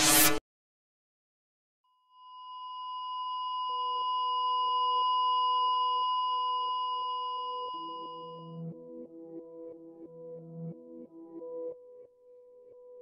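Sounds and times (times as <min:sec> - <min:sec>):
ambient electronic music: 0:07.7 - 0:13.0.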